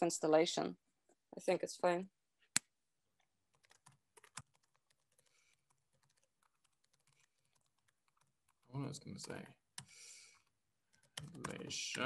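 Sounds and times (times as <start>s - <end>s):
computer keyboard typing: 3.2s - 12.0s.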